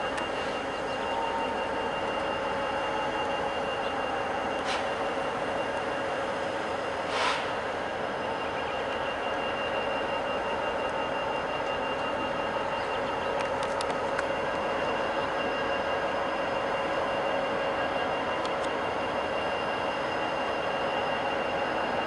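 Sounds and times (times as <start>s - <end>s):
diesel locomotives rolling past: 0.0s - 22.0s
short air hiss: 7.1s - 7.5s.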